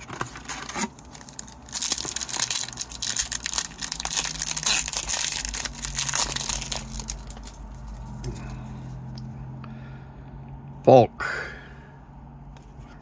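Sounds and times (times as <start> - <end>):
foil wrapper crinkling: 0.0 - 7.9.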